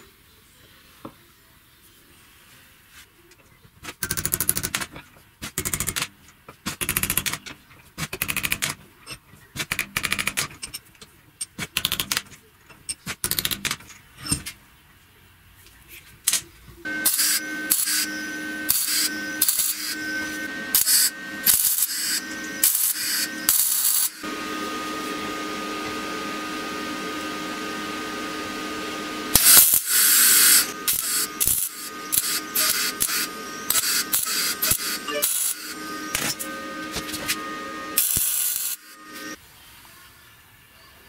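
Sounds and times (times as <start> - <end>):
steady hum: 16.8 - 39.4
welder arc crackling: 16.9 - 25.1, 28.8 - 39.4.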